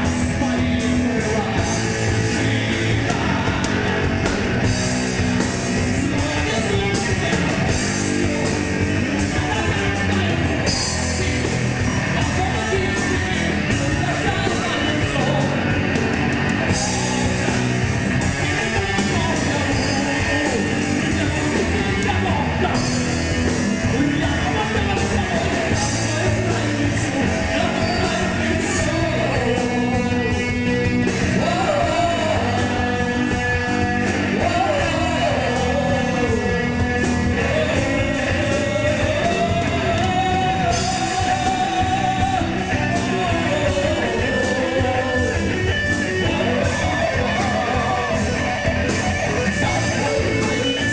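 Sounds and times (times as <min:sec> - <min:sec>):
distorted electric guitar: 0:00.0 - 0:50.9
drums: 0:00.0 - 0:50.9
live metal band playing: 0:00.0 - 0:50.9
vocalist singing: 0:00.0 - 0:50.9.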